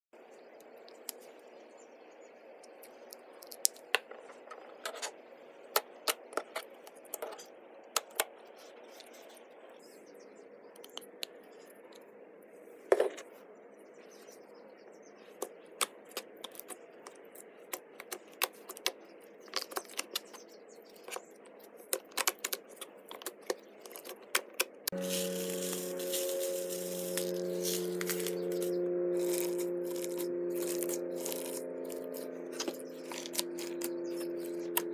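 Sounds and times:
slime kneaded by hand: 21.8 - 34.9.

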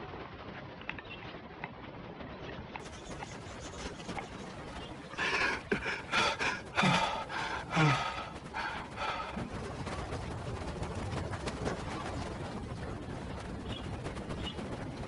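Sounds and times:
man panting: 5.1 - 9.7.

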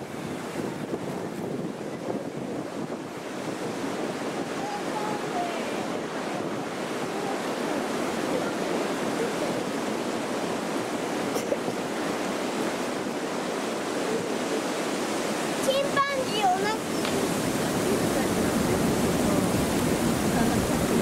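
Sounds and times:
wind blowing across microphone: 0.0 - 21.0.

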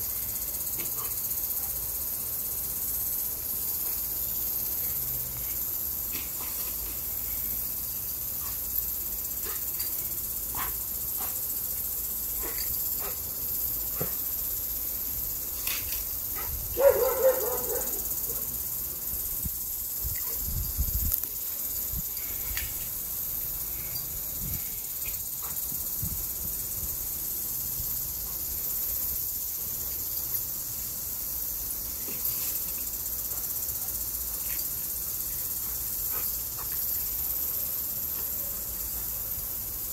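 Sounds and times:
sprinkler hissing: 0.0 - 39.9
dog barking: 16.4 - 18.5.

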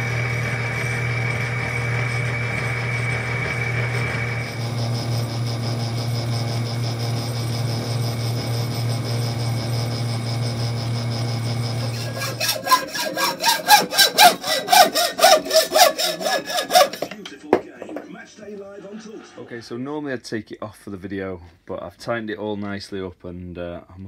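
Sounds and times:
metal lathe humming: 0.0 - 18.0
hacksaw cutting metal: 10.2 - 17.6.

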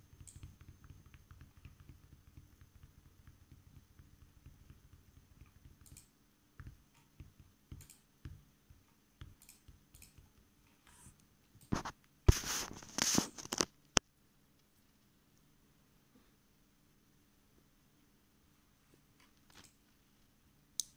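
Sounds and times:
rustling and clicking: 9.4 - 14.0.

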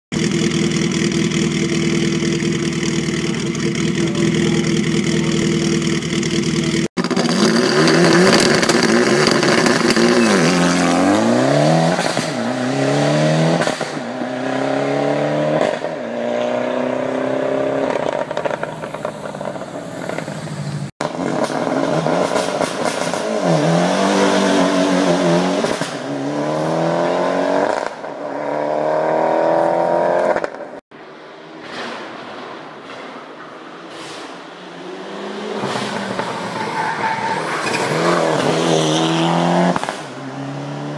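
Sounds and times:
car engine idling: 0.1 - 6.9.

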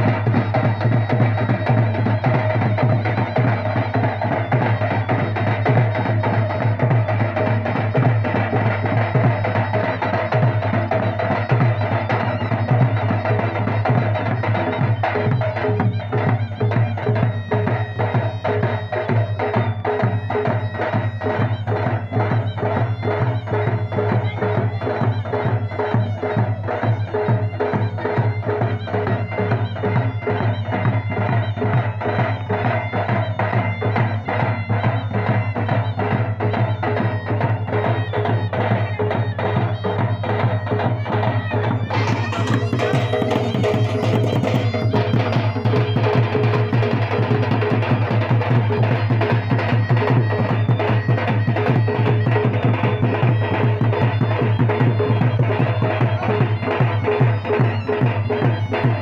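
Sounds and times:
traditional drumming: 0.0 - 59.0
held melody tones: 36.4 - 47.6.

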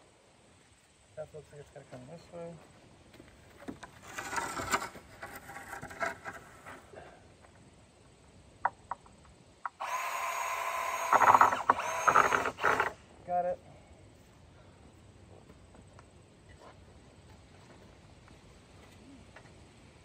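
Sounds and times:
wood brace knocking and scraping: 3.1 - 7.6, 8.6 - 9.8
cordless drill driving screw: 9.8 - 13.0.

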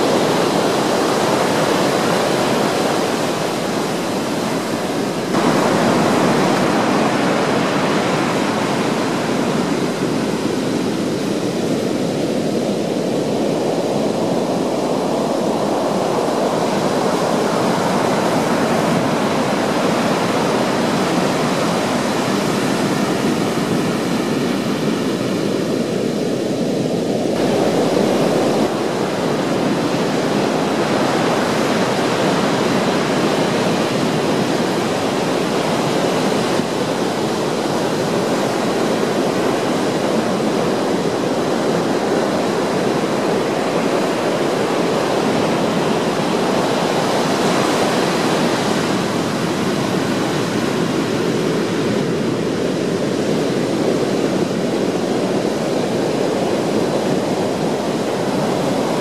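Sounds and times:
heavy surf breaking on rocks: 0.0 - 59.0.

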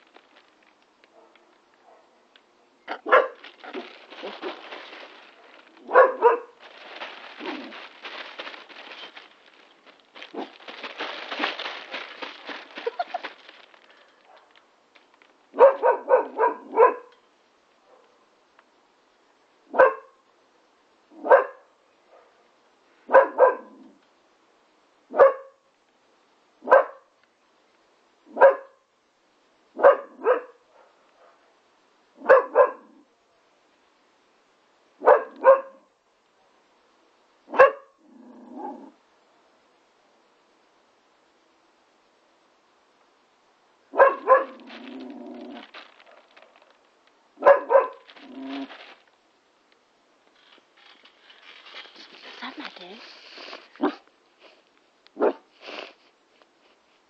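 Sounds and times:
scuffling rustling noise: 0.0 - 1.6, 2.9 - 16.0, 44.0 - 49.2, 50.2 - 57.0
puppy barking: 2.9 - 4.6, 5.8 - 6.6, 15.6 - 17.1, 19.7 - 20.2, 21.2 - 22.4, 23.1 - 23.8, 25.1 - 25.6, 26.6 - 27.1, 28.3 - 28.8, 29.8 - 31.4, 32.2 - 33.0, 35.0 - 35.9, 37.5 - 38.0, 43.9 - 44.7, 47.4 - 48.7, 53.8 - 54.0, 55.2 - 55.5.

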